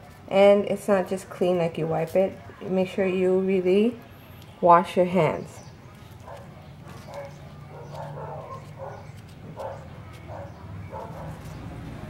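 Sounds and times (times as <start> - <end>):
dog barking: 6.2 - 11.6.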